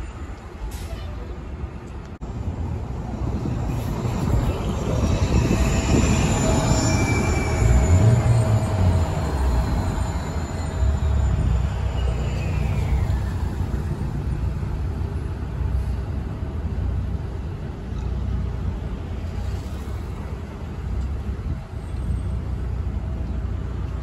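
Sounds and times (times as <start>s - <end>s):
bus and car engines rumbling: 0.0s - 24.0s
high squeal sliding down: 3.5s - 14.6s.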